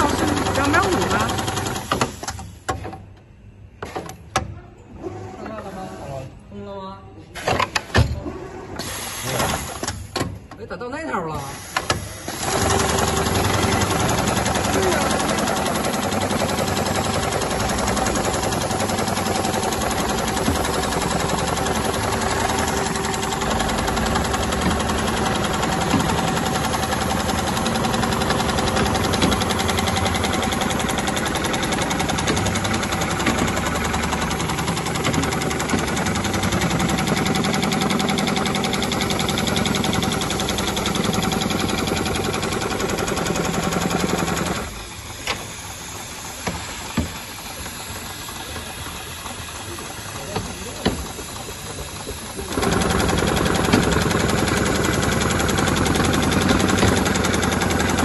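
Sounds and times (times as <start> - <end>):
sewing machine stitching: 0.0 - 2.3, 11.6 - 44.8, 48.3 - 58.0.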